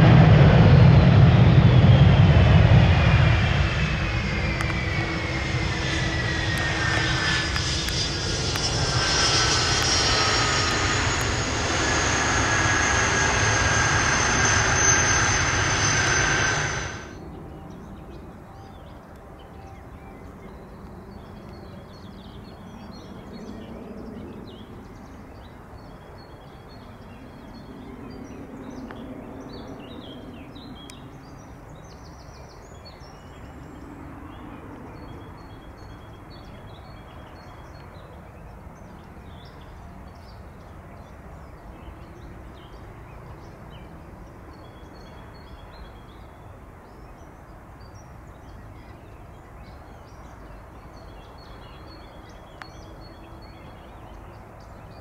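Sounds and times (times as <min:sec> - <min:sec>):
low drone: 0:00.0 - 0:17.2.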